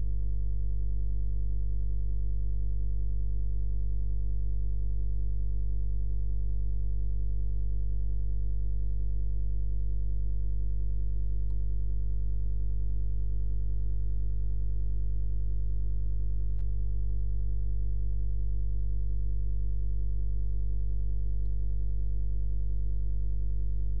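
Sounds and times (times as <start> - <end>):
low electrical hum: 0.0 - 24.0
faint click: 11.3 - 11.7, 16.6 - 16.8, 21.4 - 21.6.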